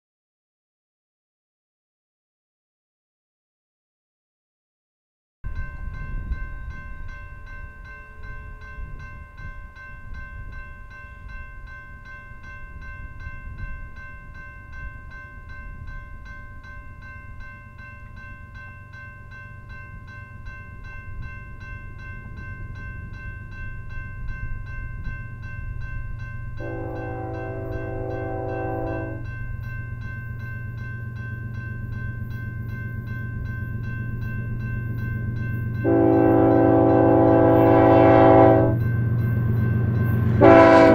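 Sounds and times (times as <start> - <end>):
freight train rumble: 5.4 - 40.9
crossing bell ringing rapidly: 5.5 - 40.9
train horn blast: 26.6 - 29.3, 35.8 - 38.8, 40.3 - 40.9.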